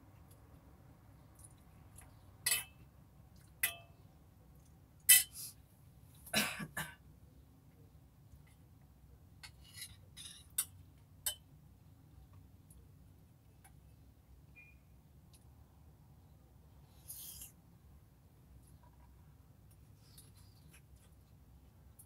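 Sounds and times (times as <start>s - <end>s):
metal spoon clinking on bowl: 2.5s - 2.8s, 3.6s - 4.0s.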